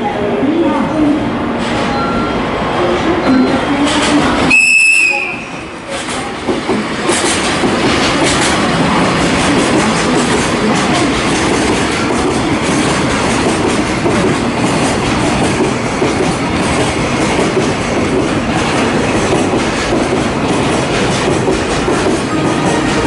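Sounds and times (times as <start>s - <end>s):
train wheels rolling on rails: 0.8s - 23.0s
rail clicks: 1.5s - 23.0s.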